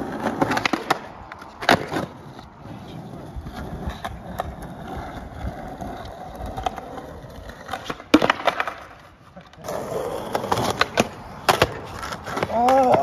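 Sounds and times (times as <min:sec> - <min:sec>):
skateboard clacks: 0:00.0 - 0:13.0
skateboard wheels rolling on asphalt: 0:00.0 - 0:13.0.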